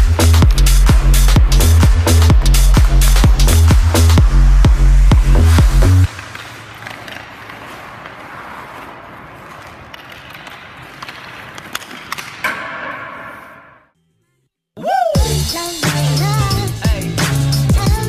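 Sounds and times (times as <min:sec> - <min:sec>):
skates scraping on ice: 0:06.0 - 0:13.9
stick hitting puck: 0:06.1 - 0:13.8.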